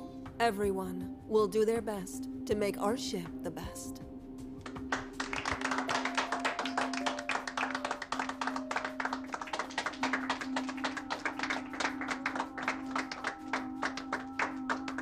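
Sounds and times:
people applauding: 4.6 - 15.0.

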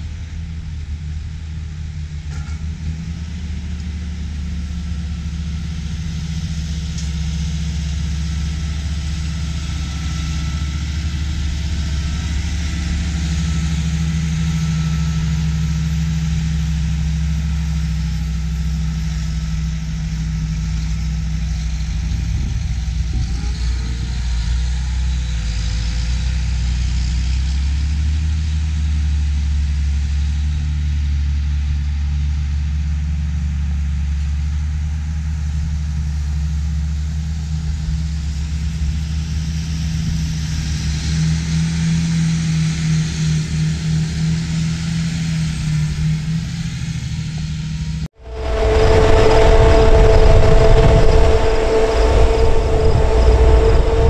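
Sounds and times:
tractor engines droning: 0.0 - 54.0.

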